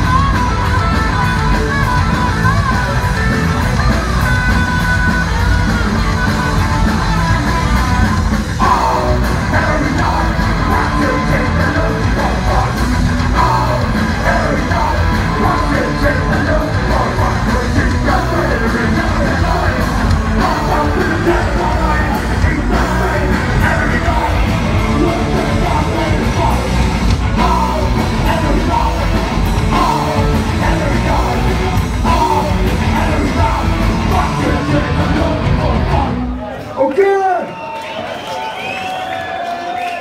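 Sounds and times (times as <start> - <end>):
live punk rock band: 0.0 - 36.7
singer's lead vocals: 0.0 - 37.4.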